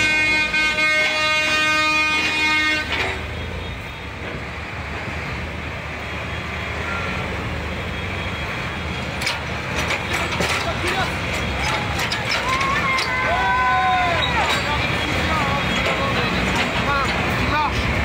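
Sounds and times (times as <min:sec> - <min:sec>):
tractor horn: 0:00.0 - 0:03.2
diesel tractor engines rumbling: 0:00.0 - 0:18.0.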